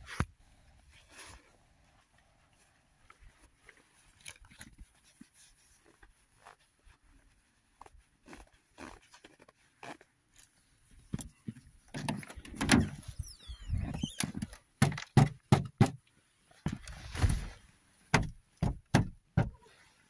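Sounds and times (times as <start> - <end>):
car door squeaking open: 12.0 - 14.5
knocks and thuds in car seat: 18.1 - 19.6.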